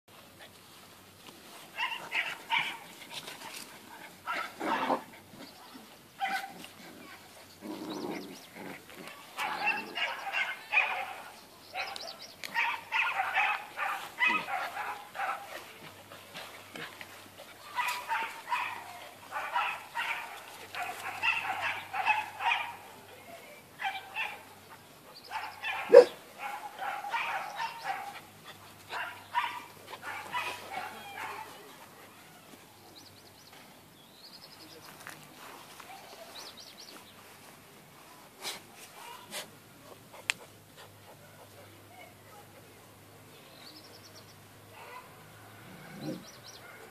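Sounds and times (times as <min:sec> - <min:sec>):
puppies yipping: 0:17.4 - 0:22.8, 0:25.3 - 0:31.6.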